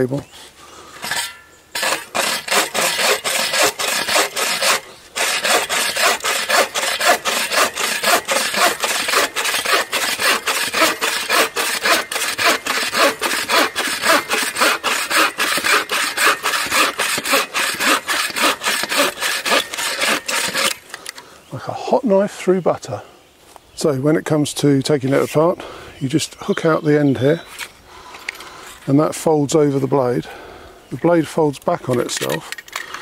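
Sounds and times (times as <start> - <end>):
bow saw cutting wood: 1.0 - 20.9.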